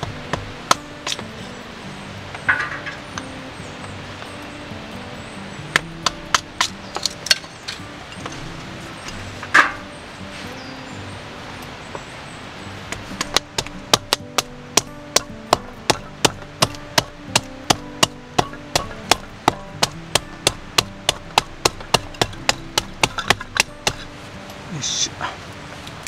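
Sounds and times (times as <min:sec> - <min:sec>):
tool striking wooden sticks: 0:00.0 - 0:01.3, 0:02.3 - 0:03.3, 0:05.7 - 0:09.9, 0:12.9 - 0:24.2
short rustle: 0:07.1 - 0:10.9.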